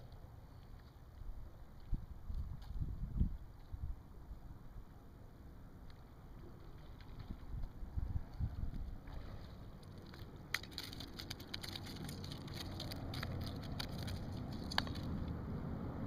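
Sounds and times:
wind and water rumble: 0:00.0 - 0:16.0
sharp irregular clicks: 0:09.8 - 0:15.4.

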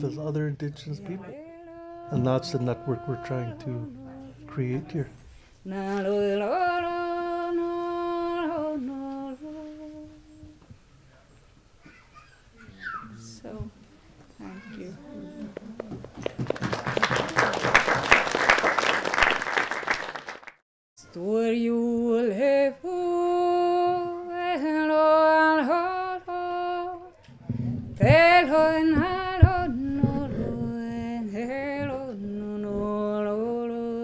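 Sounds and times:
person singing unaccompanied: 0:00.0 - 0:10.8, 0:14.4 - 0:16.0, 0:21.0 - 0:27.2, 0:28.0 - 0:34.0
second lower voice singing: 0:01.0 - 0:10.6, 0:14.5 - 0:15.8
applause: 0:16.2 - 0:20.6.

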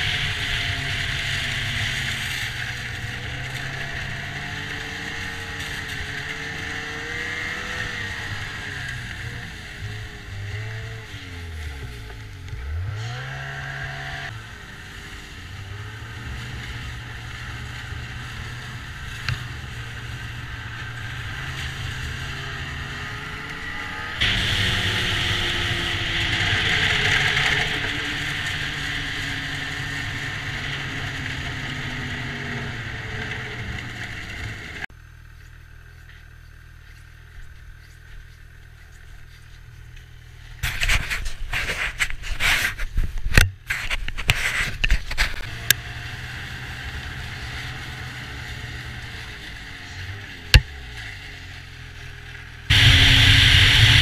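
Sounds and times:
loud rough noise: 0:00.0 - 0:34.9, 0:52.7 - 0:54.0
track and wind noise: 0:00.0 - 0:34.9, 0:52.2 - 0:54.0
snowmobile engine running: 0:00.0 - 0:42.9, 0:44.4 - 0:54.0
loud hissing: 0:24.2 - 0:27.6, 0:52.7 - 0:54.0.

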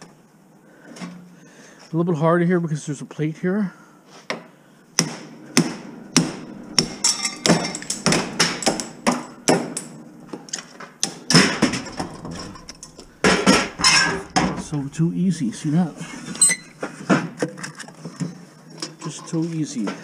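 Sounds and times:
hammer striking metal: 0:05.0 - 0:16.4.

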